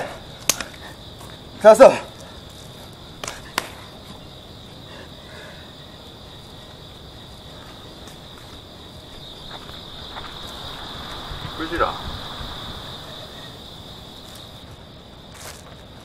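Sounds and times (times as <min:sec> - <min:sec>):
crickets chirping: 0:00.0 - 0:16.0
sharp smacks: 0:00.4 - 0:00.8, 0:03.2 - 0:03.8.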